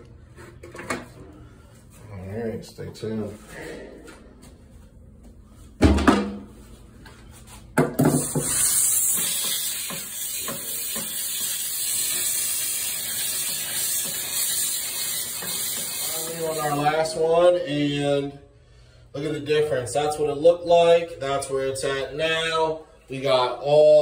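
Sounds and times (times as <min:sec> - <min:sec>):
steam cleaner hissing: 0:08.0 - 0:17.1.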